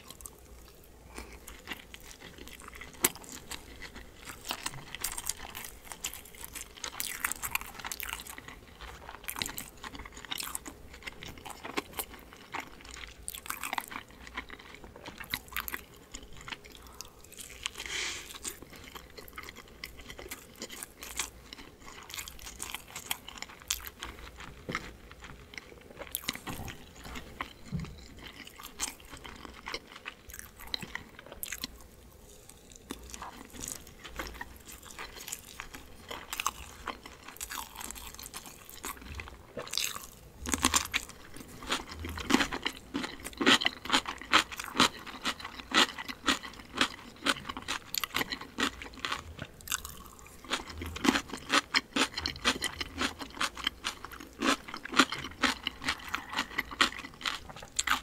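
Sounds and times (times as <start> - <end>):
person chewing dumplings: 0.0 - 58.0.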